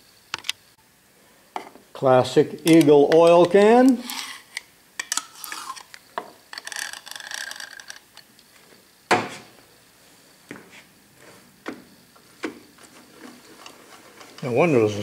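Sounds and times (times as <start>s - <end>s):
metal parts clicking: 5.0s - 8.2s.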